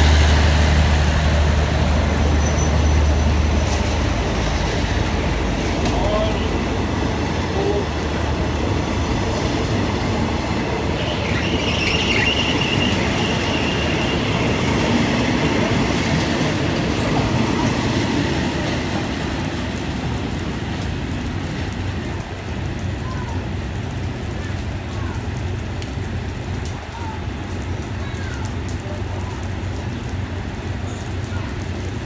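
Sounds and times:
train wheels rolling on rails: 0.0s - 32.0s
high metallic squeal: 2.4s - 3.1s, 11.0s - 14.7s.

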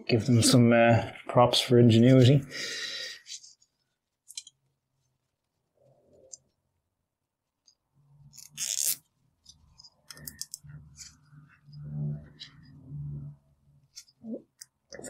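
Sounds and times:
cable tie zipping: 8.3s - 9.0s.

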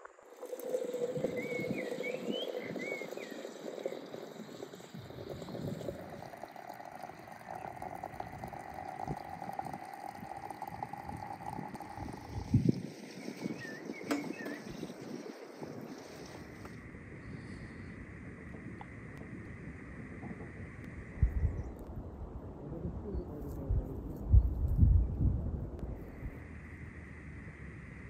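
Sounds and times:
hot water pouring into teapot: 0.0s - 16.8s.

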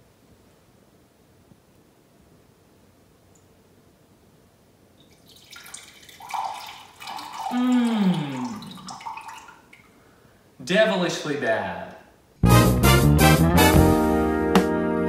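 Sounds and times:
coffee pouring into mug: 5.0s - 9.7s.

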